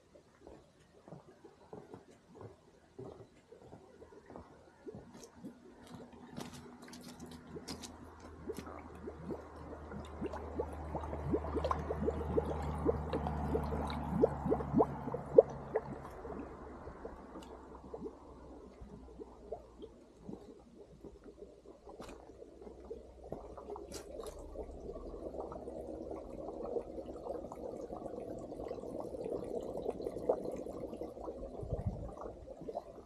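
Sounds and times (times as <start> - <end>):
gas bubbling through water: 4.0 - 33.0.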